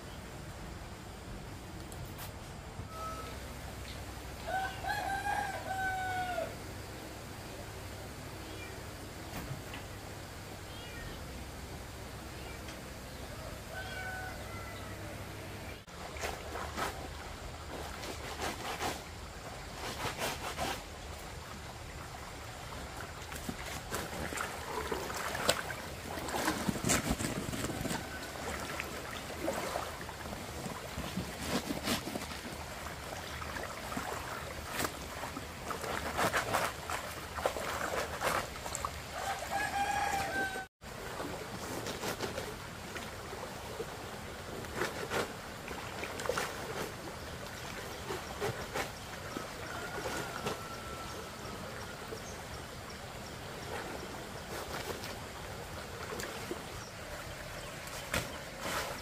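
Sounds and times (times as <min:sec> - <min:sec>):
rooster crowing: 0:04.4 - 0:06.6, 0:13.3 - 0:15.3, 0:39.2 - 0:40.7, 0:49.3 - 0:51.6.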